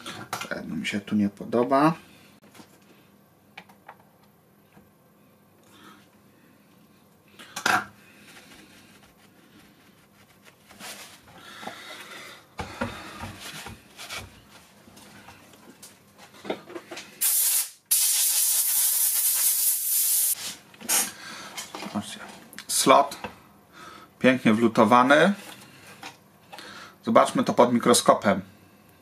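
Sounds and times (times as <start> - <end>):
compressed air hissing: 17.2 - 21.2.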